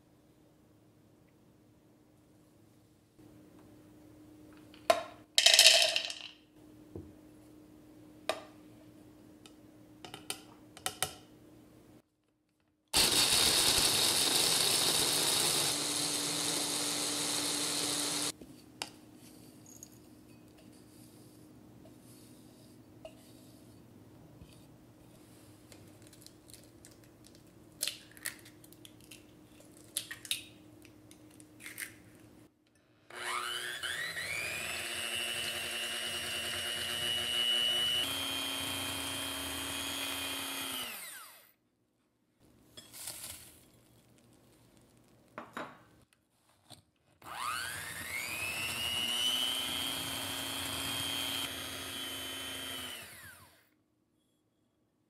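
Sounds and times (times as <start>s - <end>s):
electric hand mixer whining: 13.0s - 18.3s, 33.1s - 41.5s, 47.2s - 53.6s.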